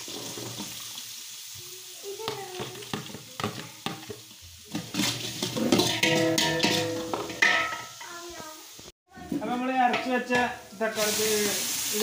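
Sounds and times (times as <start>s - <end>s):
onions sizzling in a pot: 0.0s - 12.0s
steel spoon scraping a pot: 4.7s - 7.9s.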